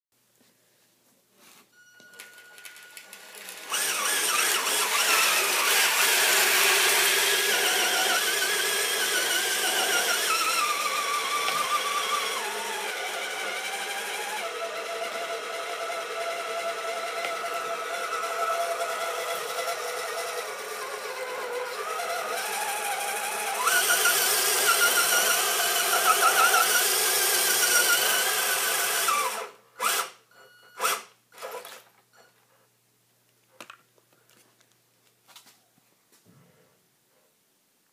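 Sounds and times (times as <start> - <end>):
short steady beep: 1.7 - 3.0
toy truck electric motor whining: 2.6 - 31.8.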